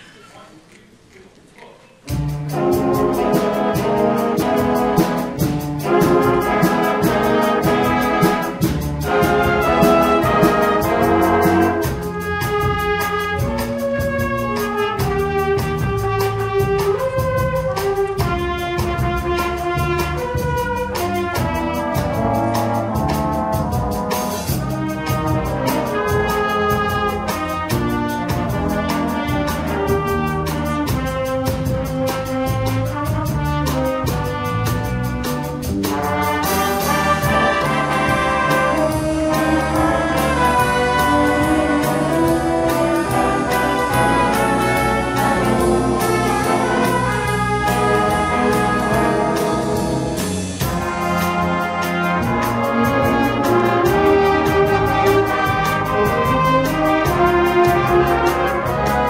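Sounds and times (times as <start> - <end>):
jazz band playing: 2.0 - 59.0
steady drum beat: 2.0 - 59.0.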